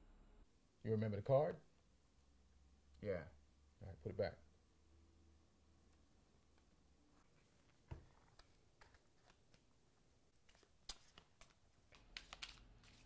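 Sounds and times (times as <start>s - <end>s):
playing cards shuffling: 7.2s - 9.8s, 10.4s - 13.0s.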